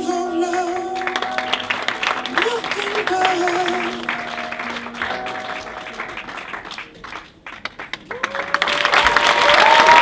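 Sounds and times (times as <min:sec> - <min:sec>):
audience applause: 0:01.1 - 0:10.0
audience cheering and whooping: 0:08.1 - 0:10.0.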